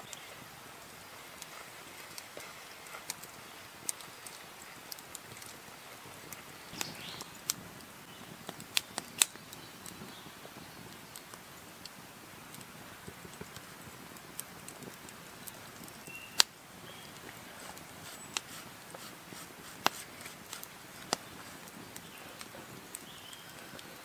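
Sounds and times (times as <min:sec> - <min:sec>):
campfire crackling: 0:00.0 - 0:24.0
sharp pops of burning wood: 0:06.2 - 0:10.0, 0:10.9 - 0:16.6, 0:17.2 - 0:23.8.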